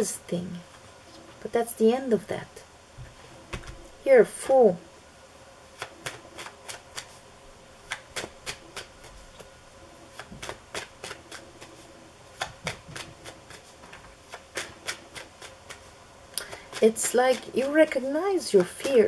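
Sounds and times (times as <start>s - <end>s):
cards snapping while shuffled: 5.8s - 7.2s, 7.9s - 8.9s, 12.4s - 13.7s.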